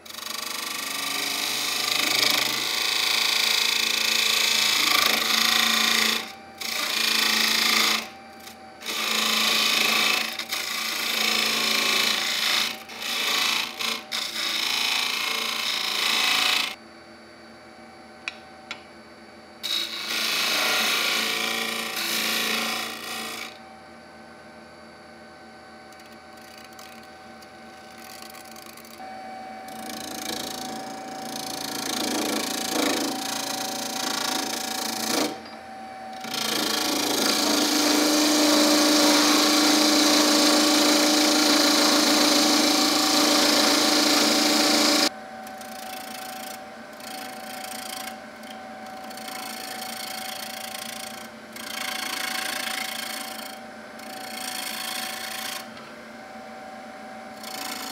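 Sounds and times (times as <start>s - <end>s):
turning tool cutting wood: 0.0s - 16.8s, 19.6s - 23.6s, 26.0s - 27.1s, 29.7s - 35.4s, 36.2s - 55.8s, 57.4s - 57.9s
lathe motor hum: 27.9s - 48.6s.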